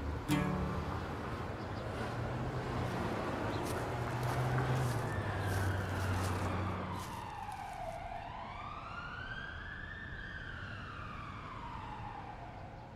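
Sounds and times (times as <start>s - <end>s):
siren wailing: 5.0s - 12.4s.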